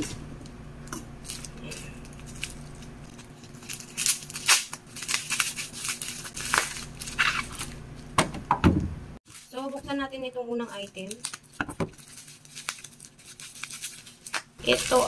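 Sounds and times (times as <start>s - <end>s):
plastic bag crinkling: 1.2s - 8.1s, 9.2s - 15.0s.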